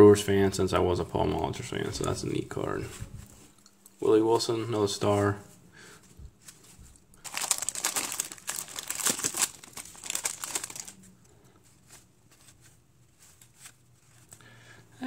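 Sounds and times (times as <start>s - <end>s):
plastic wrapper crinkling: 6.4s - 11.2s.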